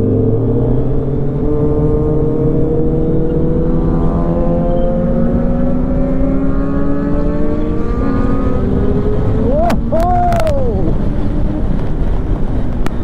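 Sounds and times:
motorcycle engine accelerating: 0.0 - 10.0.

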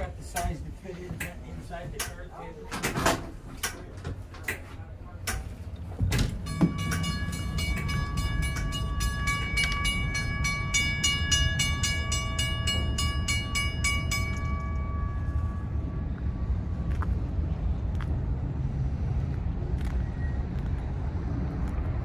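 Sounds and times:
freight train rumbling: 0.0 - 22.0
high ringing tone with clicks: 6.4 - 15.9.

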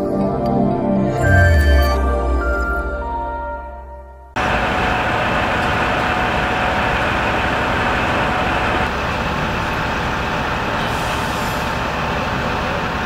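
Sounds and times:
vehicle engine and traffic rumble: 4.3 - 13.0.

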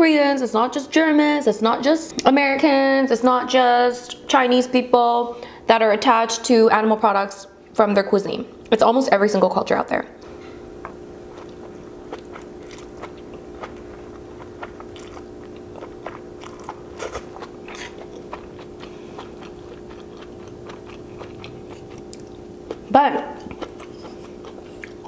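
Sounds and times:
steady low hum: 0.0 - 25.0
person chewing noodles: 10.8 - 25.0.

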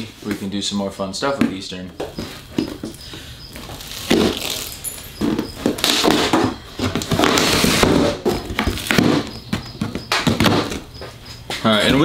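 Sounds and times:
box rustling and knocking: 1.4 - 11.2
blade cutting cardboard and tape: 3.5 - 10.9.

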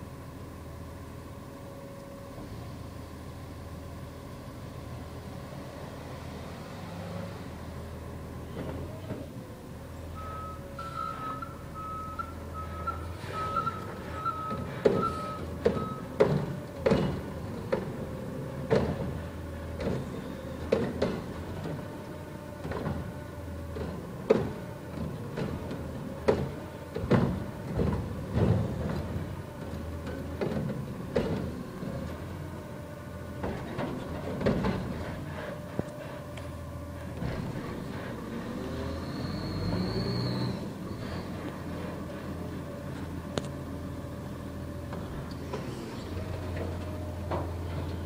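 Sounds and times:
diesel truck engine running: 0.0 - 48.0
reversing beeper: 10.1 - 16.1
knocks and clunks: 13.2 - 32.2, 33.3 - 36.1, 44.8 - 48.0.

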